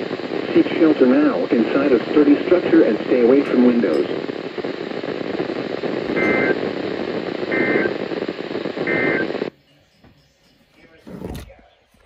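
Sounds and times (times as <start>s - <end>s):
radio static hiss: 0.0s - 9.6s
warbling two-tone data bursts: 6.1s - 6.7s, 7.4s - 8.0s.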